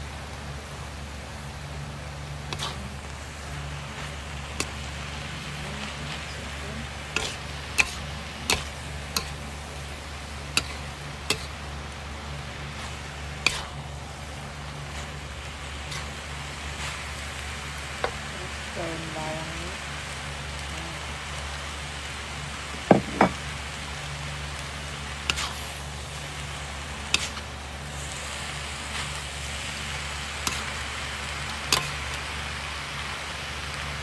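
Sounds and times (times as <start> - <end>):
food sizzling: 0.0 - 34.0
steady low hum: 0.0 - 34.0
spatula clanking against wok: 7.2 - 9.3.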